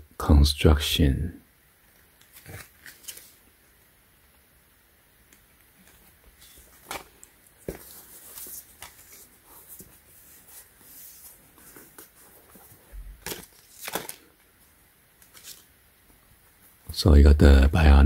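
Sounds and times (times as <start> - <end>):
tissue paper rustling: 5.8 - 14.3.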